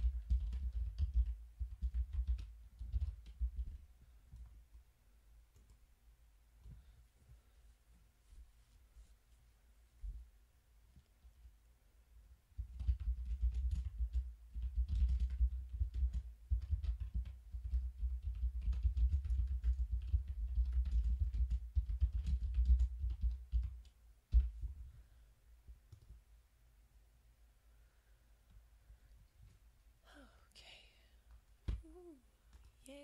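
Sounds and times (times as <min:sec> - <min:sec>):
computer keyboard typing: 0:00.0 - 0:04.5, 0:12.6 - 0:24.5.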